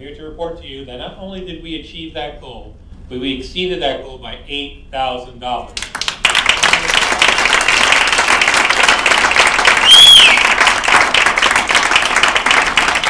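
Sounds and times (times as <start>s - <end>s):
audience applauding: 5.8s - 13.0s
loud whistle: 9.6s - 10.8s.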